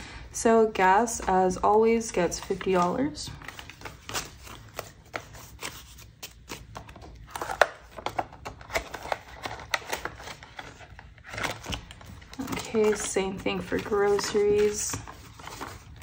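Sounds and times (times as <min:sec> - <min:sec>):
banknotes rustling: 0:01.3 - 0:16.0
pages flipping: 0:02.3 - 0:16.0.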